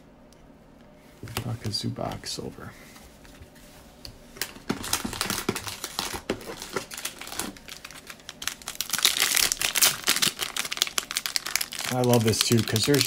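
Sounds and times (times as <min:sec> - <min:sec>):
plastic wrapper crinkling: 0:04.4 - 0:13.0.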